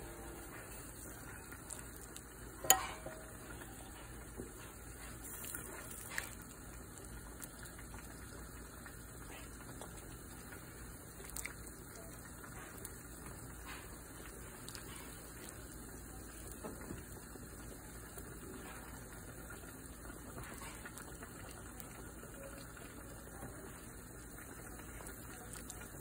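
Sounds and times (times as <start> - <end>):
dishware clinking on ceramic bowl: 2.6 - 3.3.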